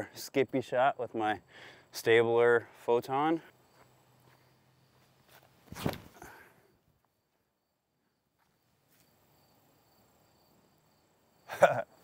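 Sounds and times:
insects chirping: 0.0 - 12.0
disc throw sharp sound: 5.7 - 6.2.

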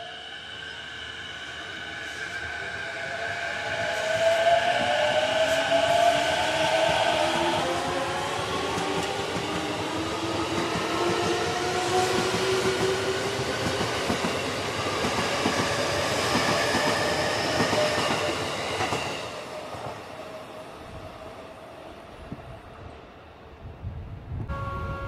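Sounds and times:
train wheels clacking on rails: 3.6 - 20.0.

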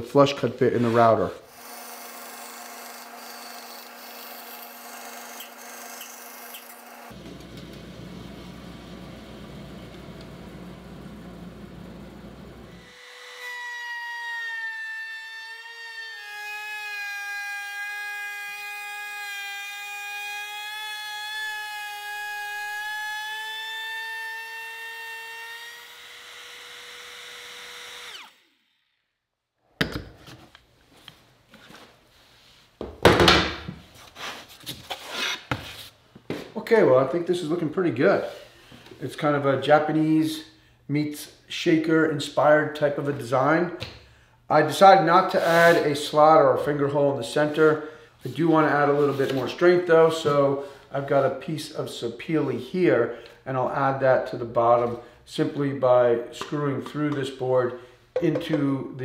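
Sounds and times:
bandsaw cutting wood: 1.5 - 7.2, 12.7 - 28.8
router whining: 1.5 - 9.1, 20.0 - 29.0
wood knocking: 58.2 - 58.6.

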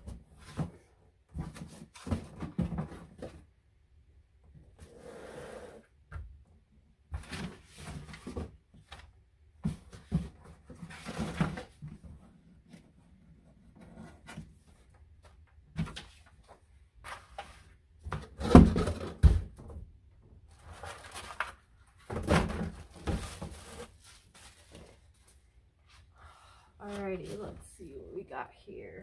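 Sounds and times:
cardboard and paper rustling: 7.2 - 19.4, 20.5 - 26.1.

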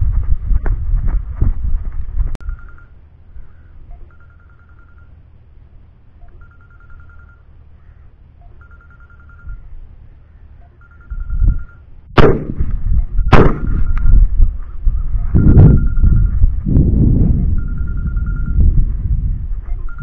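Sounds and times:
faint high pulsing trill: 2.4 - 5.3, 6.1 - 11.9, 12.7 - 20.0
shotgun shots: 12.2 - 12.7, 13.3 - 13.9.

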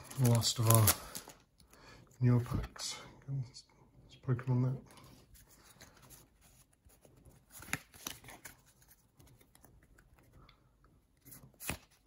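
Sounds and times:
cards sliding and rustling: 5.2 - 10.4, 11.1 - 12.0
cards snapping: 11.4 - 12.0.

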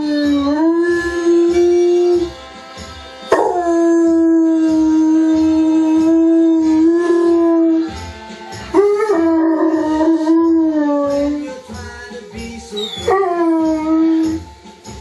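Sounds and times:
music: 0.0 - 15.0
dog howling: 3.4 - 8.0, 8.8 - 11.5, 12.8 - 14.4.

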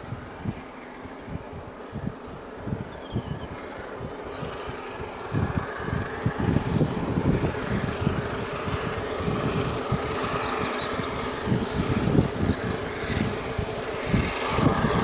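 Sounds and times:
steam locomotive exhaust: 3.6 - 15.0.

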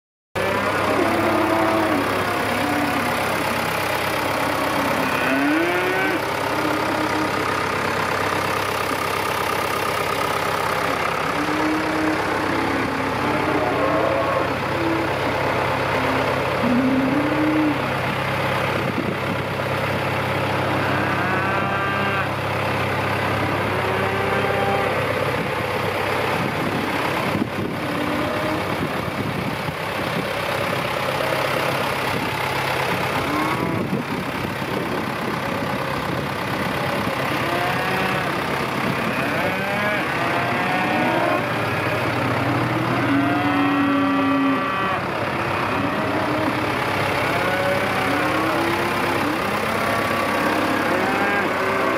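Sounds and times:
cattle mooing: 0.4 - 18.2, 20.4 - 22.5, 23.1 - 25.5, 27.2 - 29.0, 32.8 - 34.3, 37.1 - 51.9
tractor diesel engine idling: 0.4 - 51.9.

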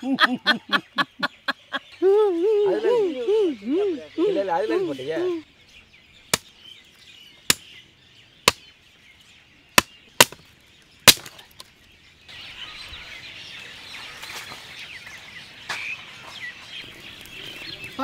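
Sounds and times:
birds chirping: 0.0 - 18.0
billhook chopping wood: 7.5 - 7.7, 8.4 - 8.6, 9.8 - 11.6.

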